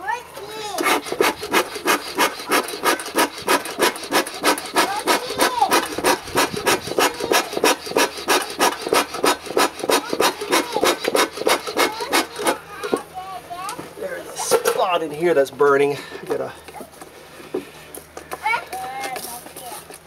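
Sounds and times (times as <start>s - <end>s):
bellows puffing air: 0.6s - 12.7s.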